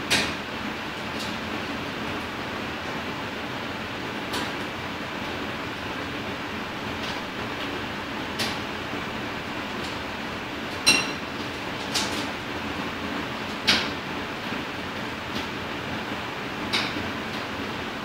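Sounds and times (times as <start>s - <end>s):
mechanical hum: 0.0s - 18.0s.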